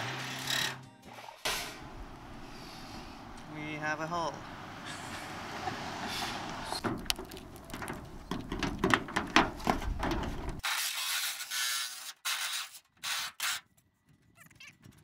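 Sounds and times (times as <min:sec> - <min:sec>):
reciprocating saw cutting metal: 0:00.0 - 0:00.9.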